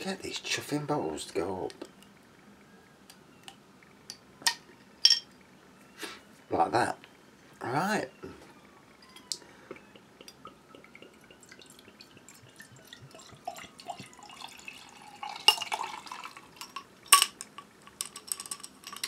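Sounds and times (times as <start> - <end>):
glass clinks: 4.5 - 5.3
beer pouring into glass: 9.0 - 19.0.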